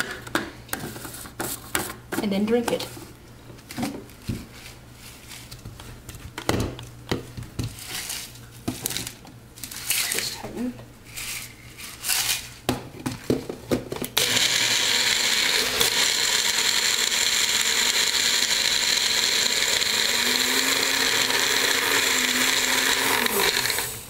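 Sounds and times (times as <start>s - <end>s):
blender crushing ice: 14.2s - 24.0s.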